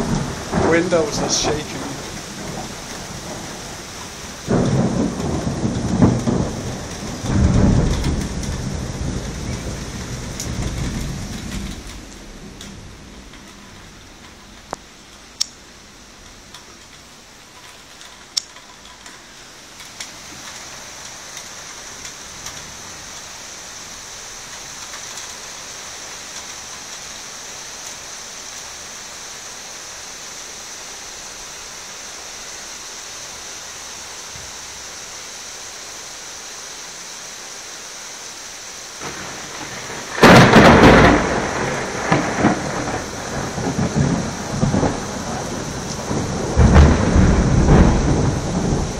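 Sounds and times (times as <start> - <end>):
thunderclap rumbling: 0.0 - 14.8, 39.0 - 48.9
steady rain: 0.0 - 48.9.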